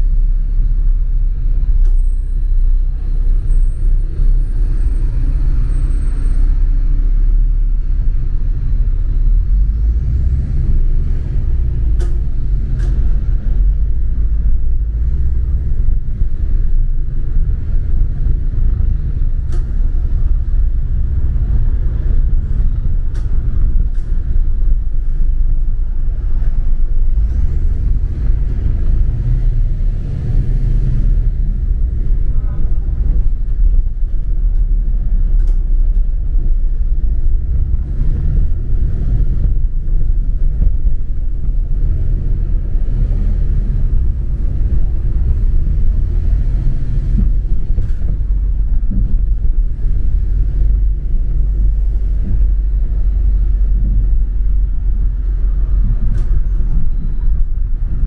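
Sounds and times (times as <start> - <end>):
bus engine and road rumble: 0.0 - 58.0.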